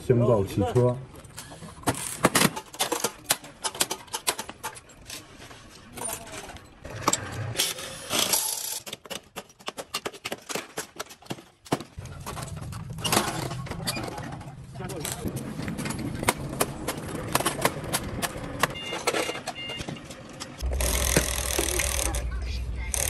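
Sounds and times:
metal tools clinking and knocking: 1.9s - 11.3s, 18.7s - 22.2s.

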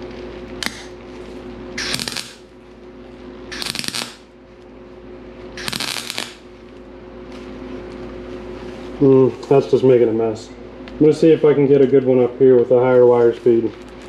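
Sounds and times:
welder crackling buzz: 0.0s - 9.1s
fan hum: 0.0s - 14.0s.

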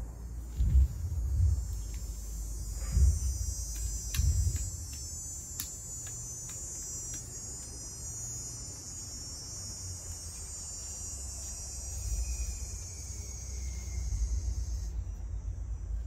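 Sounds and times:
low rumble: 0.0s - 4.9s
high-pitched insect chorus: 0.0s - 16.0s.

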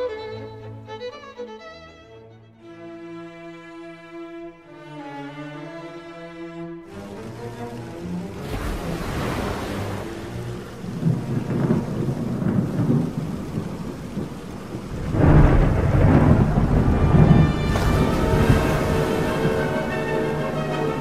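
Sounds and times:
rain: 6.8s - 21.0s
rolling thunder: 9.6s - 21.0s
loud rumbling thunderclap: 10.8s - 21.0s.

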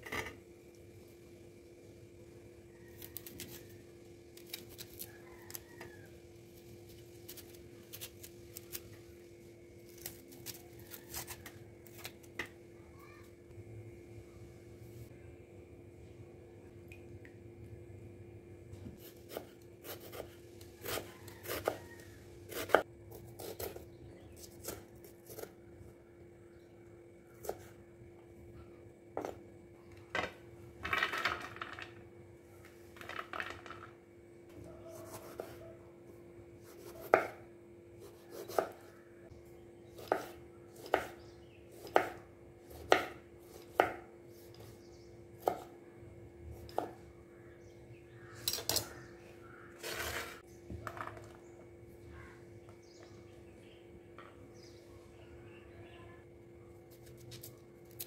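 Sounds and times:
knife chopping on wooden board: 36.7s - 37.4s, 38.0s - 38.9s, 40.0s - 41.2s, 41.8s - 44.1s, 46.6s - 47.0s.

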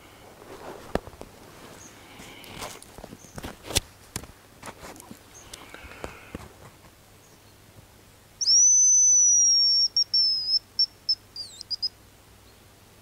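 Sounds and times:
high bird decoy whistle: 8.4s - 11.9s.

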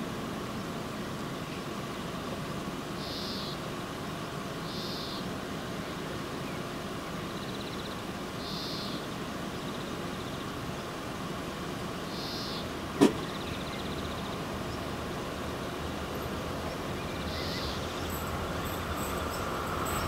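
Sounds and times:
sharp knock: 13.0s - 13.2s.

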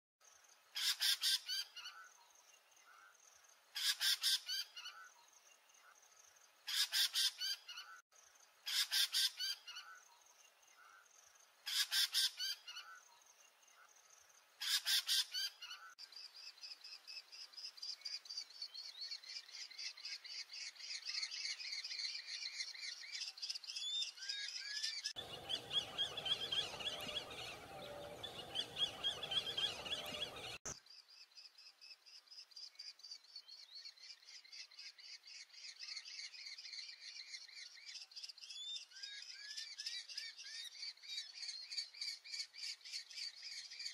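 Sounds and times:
falcon calling: 25.2s - 30.6s.

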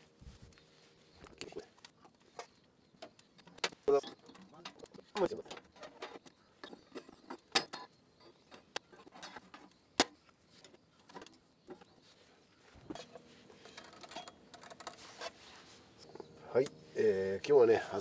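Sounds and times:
hard objects clicking and knocking: 12.8s - 15.4s.

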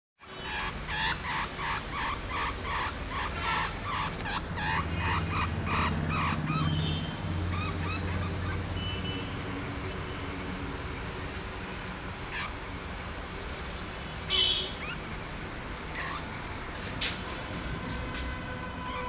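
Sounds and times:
rat squealing in distress: 0.4s - 6.8s, 12.3s - 12.6s, 14.8s - 15.1s, 15.9s - 16.3s.

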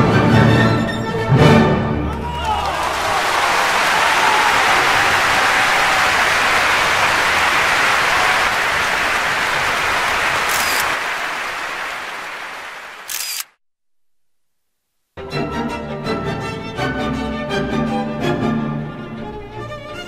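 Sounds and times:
audience applauding: 2.1s - 13.4s.

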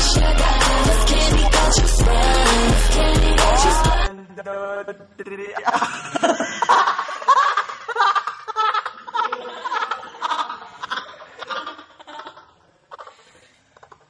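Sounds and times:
young man laughing: 5.6s - 12.6s.

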